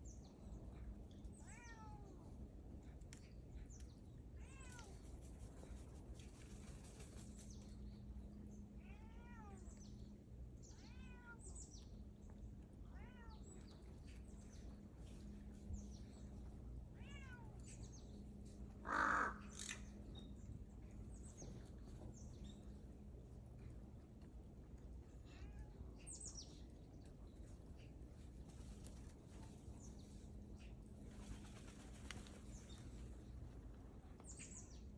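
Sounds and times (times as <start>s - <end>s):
cat meowing: 8.8s - 9.6s, 10.7s - 11.4s, 12.9s - 13.4s, 17.0s - 17.6s.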